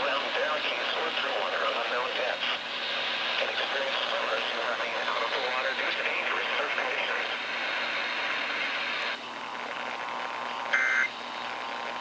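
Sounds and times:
noisy radio audio: 0.0 - 12.0.

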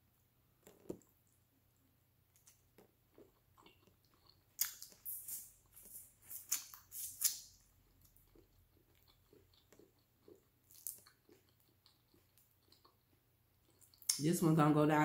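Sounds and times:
person chewing: 0.6 - 14.2.

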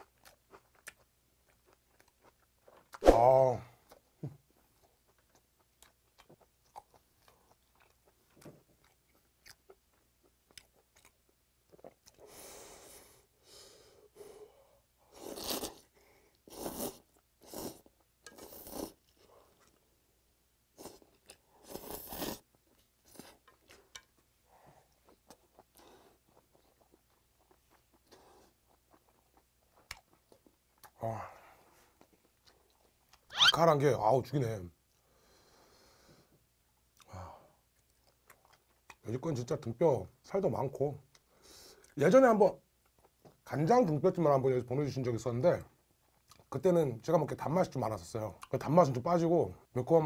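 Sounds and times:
wet chewing: 0.0 - 3.0, 4.6 - 12.2.

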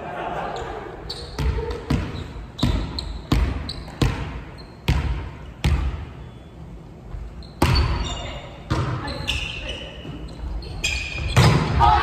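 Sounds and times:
ball bouncing on gym floor: 1.3 - 6.2, 7.5 - 12.0.

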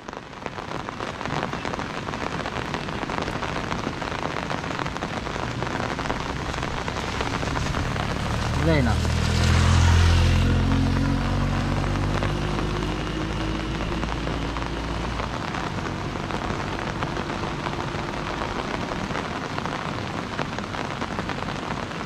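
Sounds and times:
steady rain: 0.0 - 22.0
motorbike engine hum: 5.7 - 19.2.

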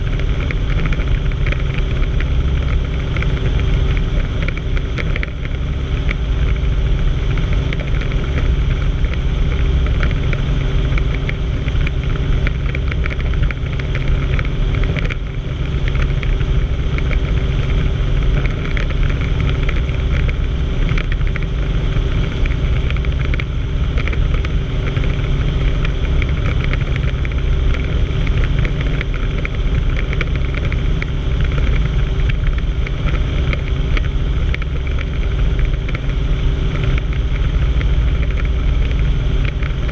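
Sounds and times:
helicopter flying: 0.0 - 39.9.

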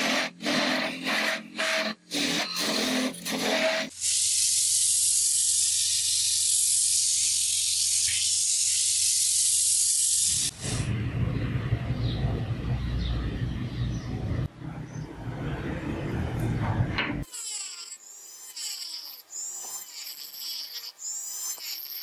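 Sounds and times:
sandpaper hissing on wood: 0.0 - 10.8
lathe motor low hum: 10.4 - 17.2.

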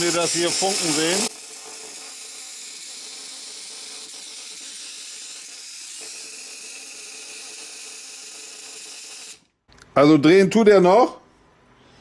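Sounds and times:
small electric motor hissing: 0.0 - 9.5.

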